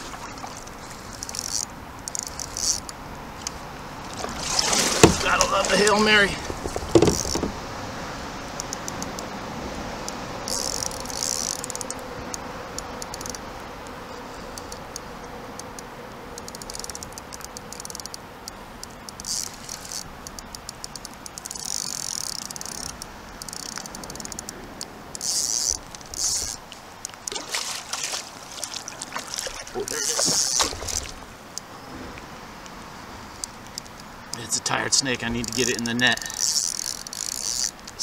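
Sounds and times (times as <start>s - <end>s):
fishing reel clicking: 1.0s - 3.6s, 10.5s - 13.4s, 16.4s - 27.4s, 29.8s - 31.1s, 35.4s - 38.0s.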